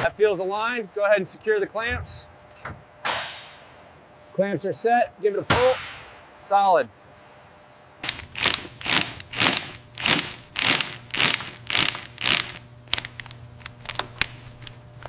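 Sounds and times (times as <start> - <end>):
ratchet wrench clicking: 8.0 - 14.8.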